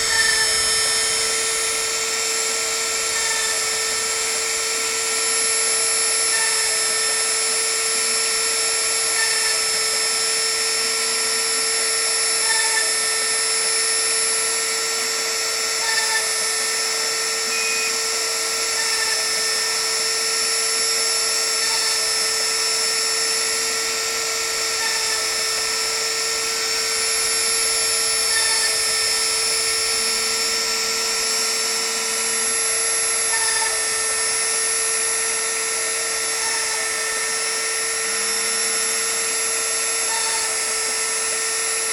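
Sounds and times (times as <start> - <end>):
high-speed spindle whining: 0.0 - 41.9.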